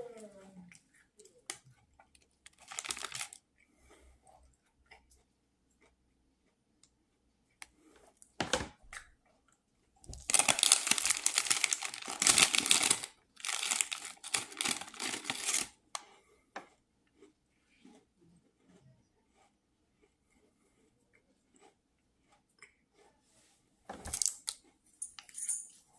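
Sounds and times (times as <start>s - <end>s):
cookie packet crinkling: 1.4s - 3.4s, 10.0s - 15.8s, 24.1s - 24.6s.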